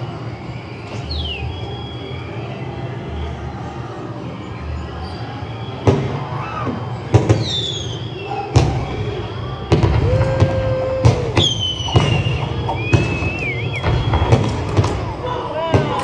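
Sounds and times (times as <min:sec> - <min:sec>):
whistling falling tone: 0:00.0 - 0:03.6, 0:04.9 - 0:16.0
held whistle-like tone: 0:00.0 - 0:03.8, 0:04.4 - 0:16.0
cartoon firework bangs: 0:09.7 - 0:16.0.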